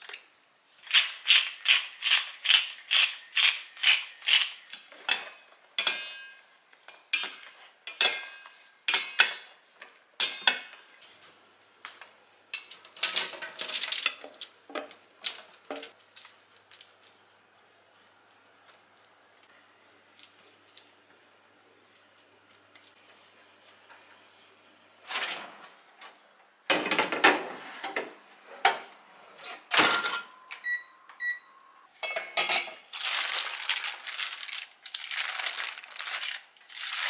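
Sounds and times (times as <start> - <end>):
pepper mill grinding: 0.8 - 4.8, 32.9 - 37.0.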